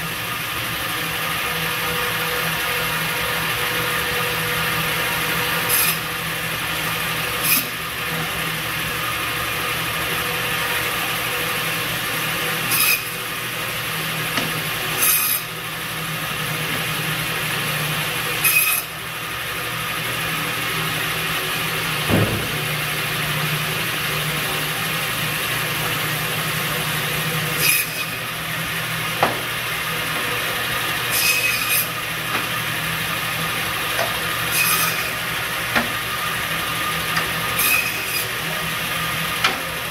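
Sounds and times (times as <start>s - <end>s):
saw blade rasping through meat: 5.6s - 6.0s, 12.6s - 13.2s, 14.9s - 15.5s, 18.4s - 18.9s, 31.1s - 32.0s, 34.5s - 35.2s, 37.5s - 38.4s.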